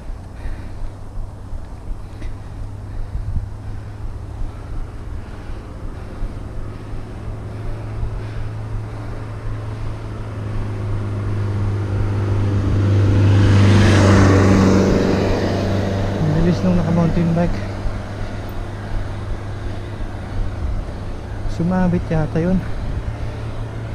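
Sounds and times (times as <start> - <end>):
motor vehicle approaching: 0.0 - 23.9
wind and riding rumble: 0.0 - 23.9.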